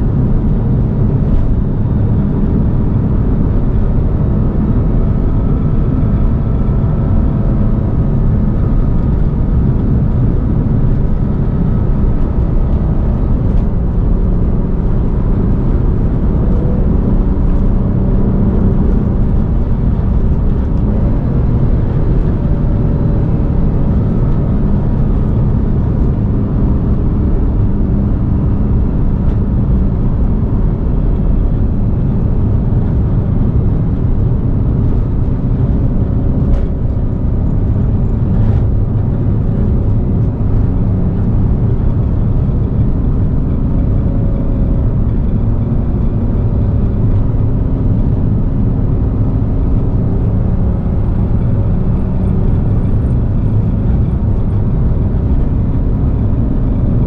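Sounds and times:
car engine running: 0:00.0 - 0:57.0
road noise rumble: 0:00.0 - 0:57.0.

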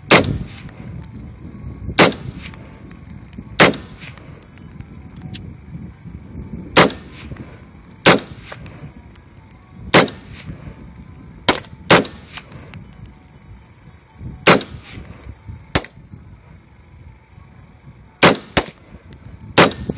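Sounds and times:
rifle shots with echo: 0:00.1 - 0:00.7, 0:02.0 - 0:02.8, 0:03.6 - 0:04.4, 0:06.8 - 0:07.4, 0:08.0 - 0:08.6, 0:09.9 - 0:10.4, 0:11.5 - 0:12.5, 0:14.5 - 0:15.0, 0:18.2 - 0:18.8, 0:19.6 - 0:19.9.

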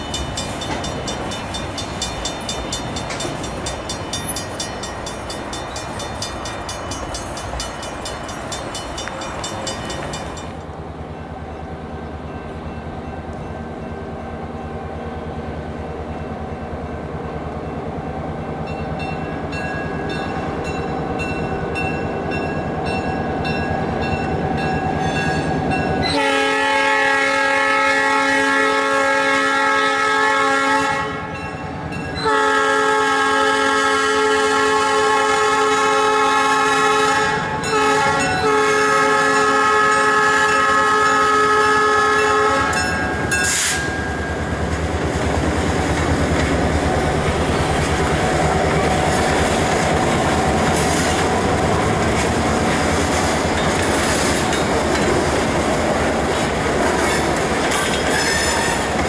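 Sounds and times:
freight cars rolling on rails: 0:00.0 - 0:27.6, 0:33.5 - 0:59.0
locomotive air horn blasts: 0:26.0 - 0:31.4, 0:32.2 - 0:43.9, 0:58.1 - 0:59.0.

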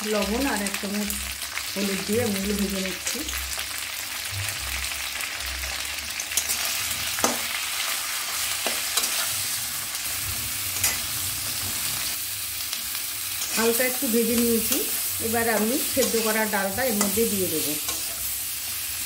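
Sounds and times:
vegetables sizzling in oil: 0:00.0 - 0:19.0
metal spatula scraping pan: 0:08.3 - 0:09.6, 0:10.5 - 0:11.8.

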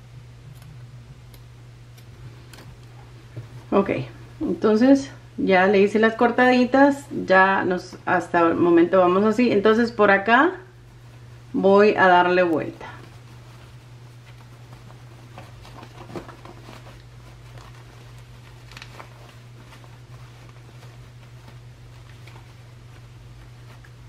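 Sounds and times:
steady low hum: 0:00.0 - 0:24.0
cotton fabric rustling: 0:05.6 - 0:24.0.

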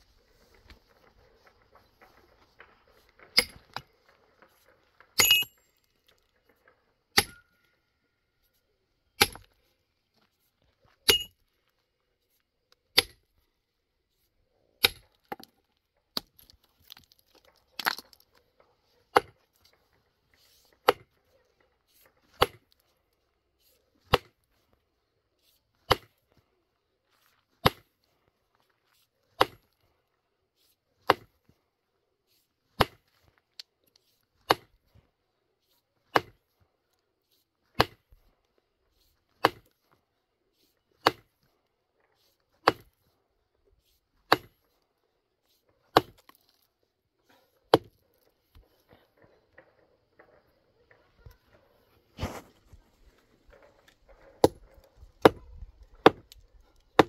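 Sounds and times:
hand tool striking stone: 0:03.4 - 0:03.8, 0:05.2 - 0:05.6, 0:07.1 - 0:07.5, 0:09.2 - 0:09.5, 0:11.0 - 0:11.4, 0:12.9 - 0:13.2, 0:14.8 - 0:15.5, 0:36.1 - 0:36.4, 0:37.8 - 0:38.0, 0:39.4 - 0:39.7, 0:41.0 - 0:41.3, 0:42.6 - 0:42.9, 0:44.3 - 0:44.6, 0:45.9 - 0:46.4, 0:47.7 - 0:48.0, 0:54.4 - 0:56.4.

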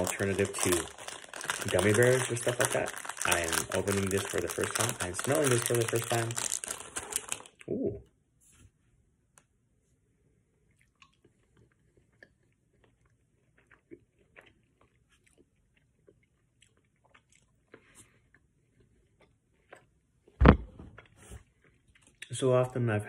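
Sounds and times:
fingers handling chews: 0:00.0 - 0:07.6
mouth chewing sounds: 0:10.7 - 0:19.9
loud thump: 0:20.4 - 0:21.0.

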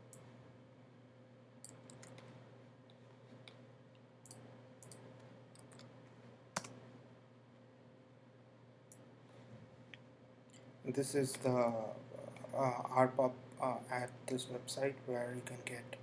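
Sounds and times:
low steady hum: 0:00.0 - 0:16.0
mouse and keyboard clicks: 0:01.6 - 0:02.3.

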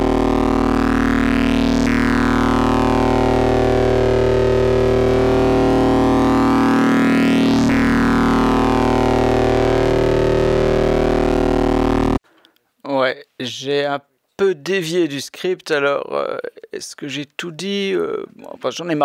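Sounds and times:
distorted synthesizer drone: 0:00.0 - 0:12.2.

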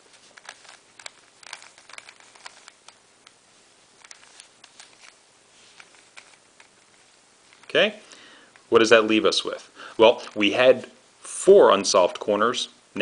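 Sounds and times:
puzzle cube clicking: 0:00.1 - 0:03.4, 0:04.0 - 0:07.7.

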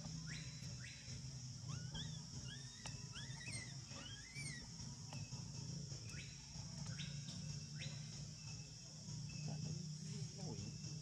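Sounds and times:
high insect drone: 0:00.0 - 0:11.0
short rising chirping calls: 0:00.2 - 0:04.7.

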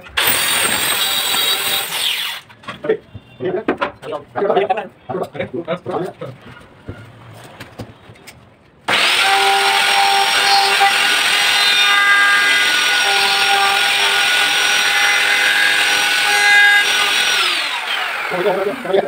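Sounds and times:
wood router cutting wood: 0:00.0 - 0:02.4, 0:08.9 - 0:19.0.

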